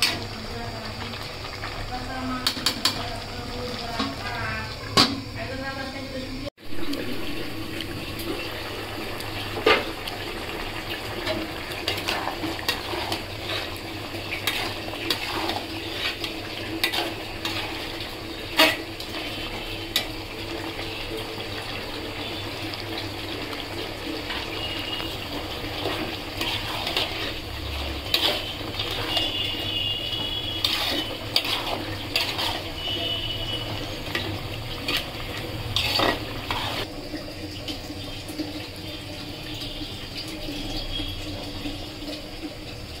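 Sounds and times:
steady hiss of simmering: 0.0 - 43.0
metal spatula scraping a pot: 10.9 - 22.4, 24.2 - 36.9.

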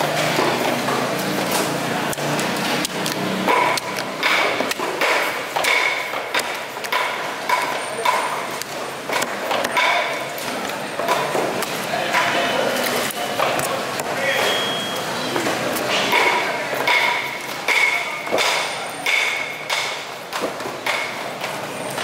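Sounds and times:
knife chopping on wooden block: 3.5 - 8.3.

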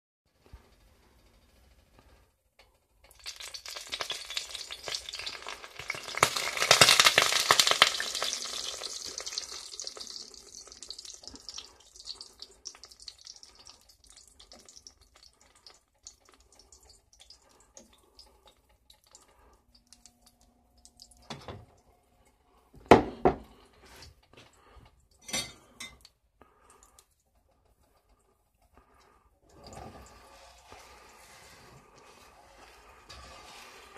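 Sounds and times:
egg mixture sizzling in skillet: 3.0 - 19.5, 29.5 - 33.9
metal spatula scraping pan: 29.5 - 33.9.

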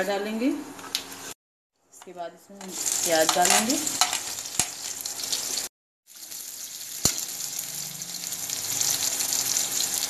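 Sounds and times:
onions sizzling in hot oil: 2.6 - 10.0.

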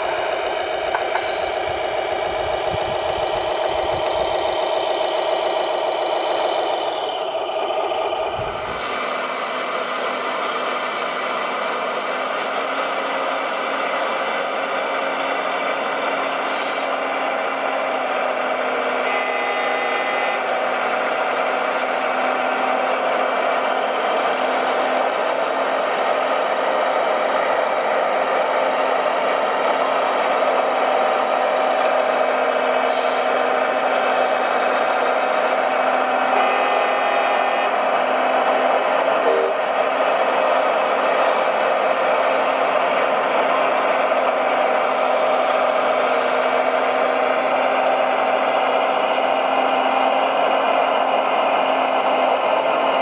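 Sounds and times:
model truck motor whine: 0.0 - 53.0
short hiss: 16.5 - 16.9, 32.8 - 33.3.

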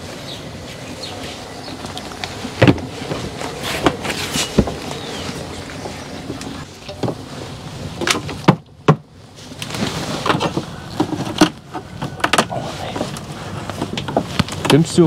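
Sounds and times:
wooden frames knocking: 2.5 - 5.0, 8.0 - 9.1.

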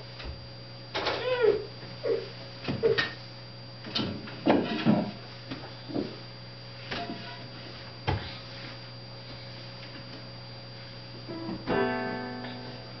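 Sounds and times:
ringing string chord: 11.7 - 13.0.

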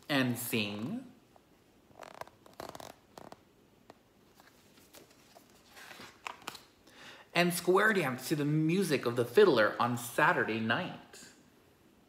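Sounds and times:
paper rustling: 4.2 - 6.7.

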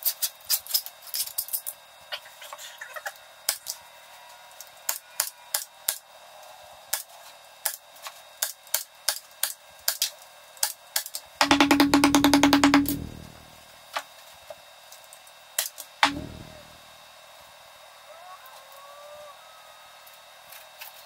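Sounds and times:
hand tools tapping metal tube: 11.4 - 13.3.

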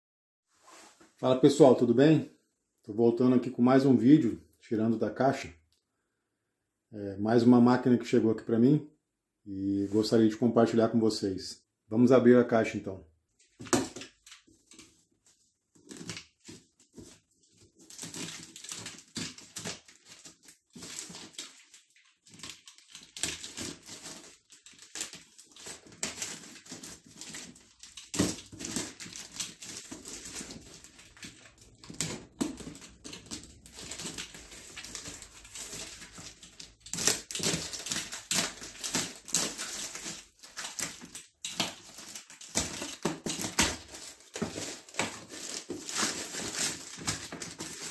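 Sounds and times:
plastic wrapping crinkling: 13.5 - 47.9
knife slitting packing tape: 17.9 - 47.9.

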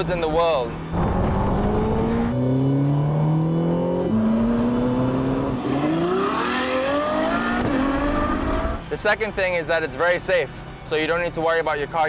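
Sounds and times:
sports car engine accelerating: 0.8 - 8.9.

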